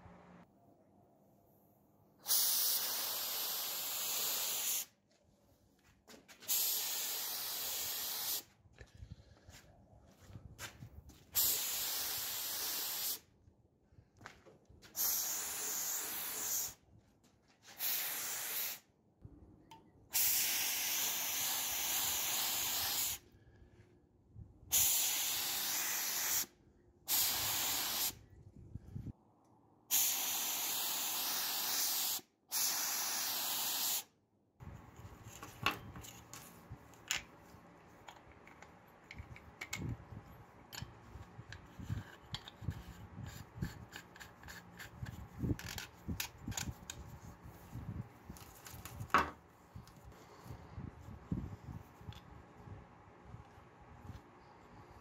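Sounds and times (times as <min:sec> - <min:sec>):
paint spray gun hissing: 0:02.2 - 0:04.9, 0:06.5 - 0:08.5, 0:11.4 - 0:13.2, 0:15.0 - 0:16.8, 0:17.8 - 0:18.8, 0:20.2 - 0:23.2, 0:24.7 - 0:26.5, 0:27.1 - 0:28.2, 0:29.9 - 0:34.1.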